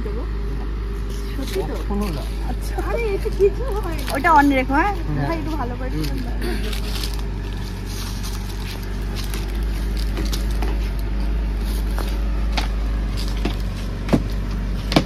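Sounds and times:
boat engine idling: 0.0 - 15.0
footsteps knocking on boat deck: 13.4 - 14.3.

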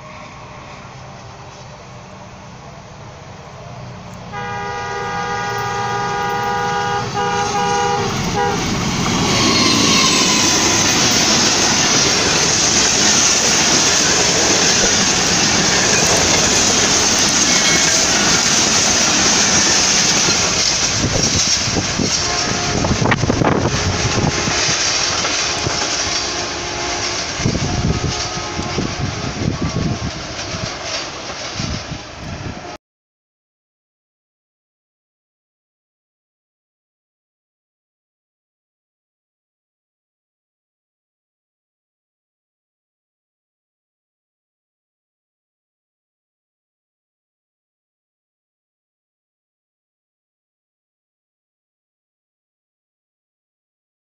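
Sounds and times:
train wheels on rails: 0.0 - 32.8
locomotive horn: 4.2 - 12.2, 22.0 - 30.1.

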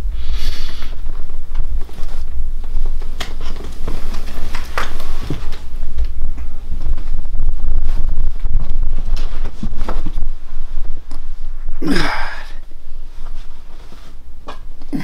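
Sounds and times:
bedding rustling: 0.0 - 15.0
steady low rumble: 0.0 - 15.0
scuffs and taps on bed: 7.8 - 11.2.

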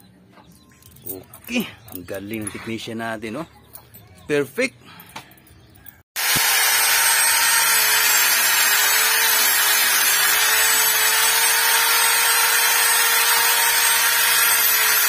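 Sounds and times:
angle grinder sanding wood: 6.2 - 15.0
motor whine: 6.2 - 15.0.

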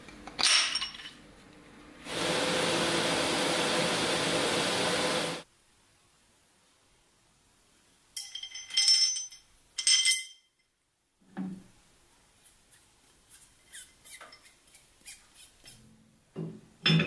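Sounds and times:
metal parts clinking and ringing: 0.3 - 1.2, 8.2 - 10.7.

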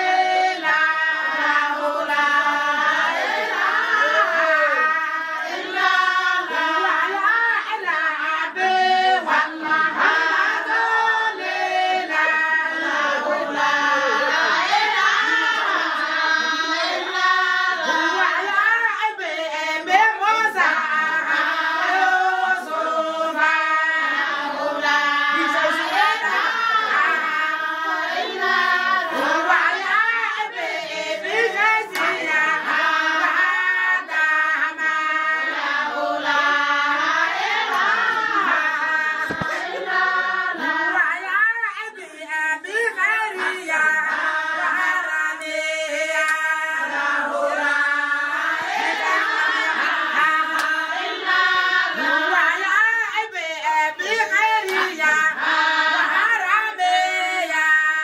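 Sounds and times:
women singing in chorus: 0.0 - 58.0
hand claps: 31.9 - 32.4, 39.2 - 39.8, 46.2 - 46.5, 50.5 - 50.9, 54.6 - 55.0.

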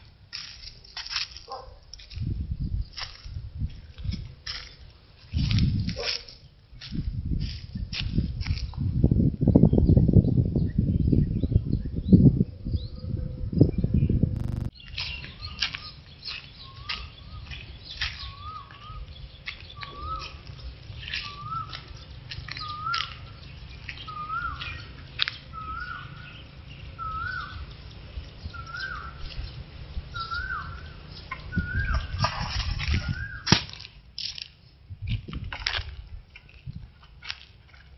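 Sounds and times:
sharp bird chirps: 14.4 - 20.4, 21.0 - 29.5.

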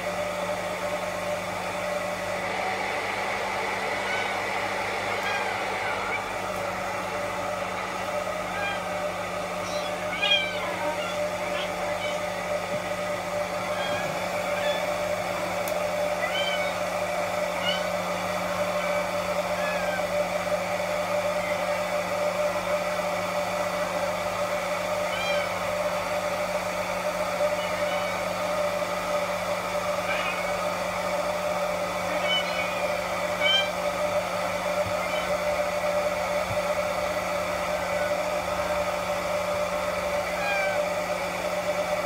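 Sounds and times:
steady machine whir: 1.9 - 23.6, 24.6 - 42.0
kitten mewing: 5.1 - 6.5, 8.4 - 9.0, 9.6 - 12.7, 13.6 - 15.2, 16.0 - 18.0, 18.6 - 20.2, 25.1 - 25.6, 27.4 - 28.2, 30.0 - 30.6, 32.0 - 34.0, 34.7 - 35.6, 40.3 - 40.9.

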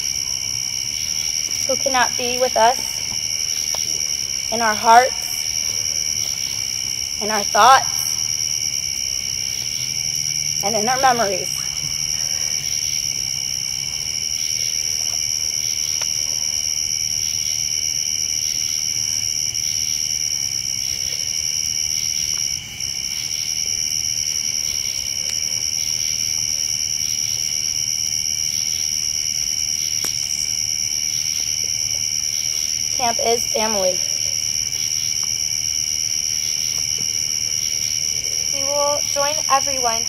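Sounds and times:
night insects trilling: 0.0 - 40.0.

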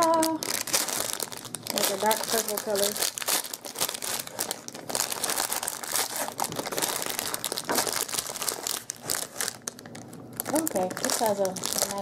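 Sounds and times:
plastic candy wrapper crinkling: 0.0 - 12.0.

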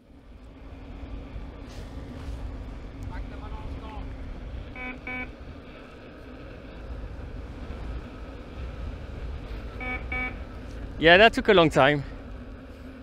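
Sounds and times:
wheel rolling rumble and hiss: 0.0 - 13.0
electric unicycle alarm beeps: 4.7 - 5.4, 9.7 - 10.5.

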